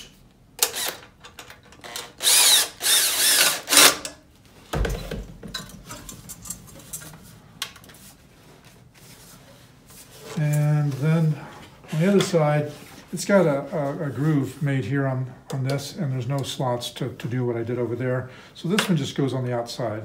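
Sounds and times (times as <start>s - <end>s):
cordless drill driving screw: 0.6s - 1.1s, 1.8s - 4.1s
handling of pipe: 4.7s - 13.0s.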